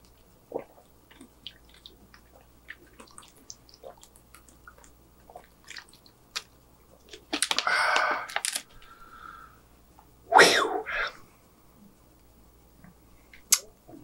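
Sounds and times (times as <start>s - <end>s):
swallowing gulps: 0.5s - 6.0s
breathy exhale: 7.6s - 9.6s.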